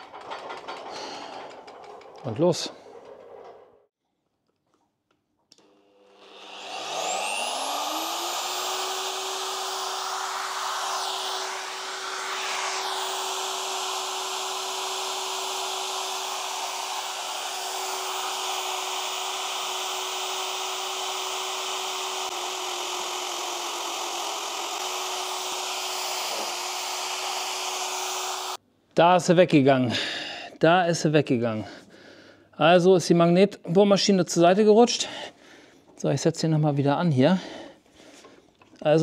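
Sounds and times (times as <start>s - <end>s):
drill cutter biting into steel tube: 5.5s - 28.6s
magnetic drill motor whining: 5.6s - 28.6s.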